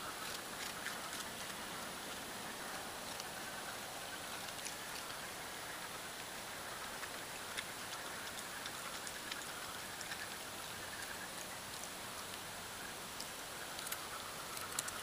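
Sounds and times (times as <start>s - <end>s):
raccoon crunching crackers: 0.0s - 15.0s
steady hiss: 0.0s - 15.0s.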